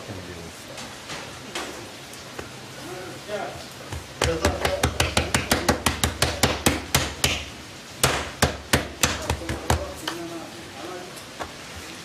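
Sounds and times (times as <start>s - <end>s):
hands slapping dough on stone: 3.9s - 10.2s.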